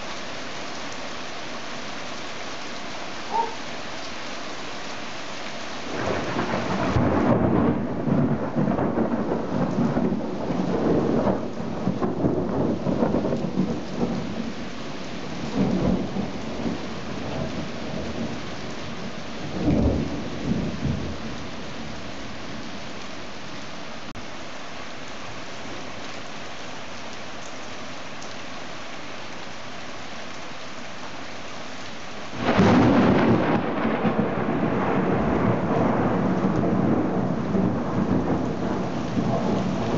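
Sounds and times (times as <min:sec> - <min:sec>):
heavy rain: 0:00.0 - 0:39.9
loud thunder crack: 0:05.9 - 0:14.5, 0:15.4 - 0:18.4, 0:19.4 - 0:22.0, 0:32.4 - 0:39.9
thunder rolling: 0:05.9 - 0:14.5, 0:15.3 - 0:22.8, 0:32.4 - 0:39.9.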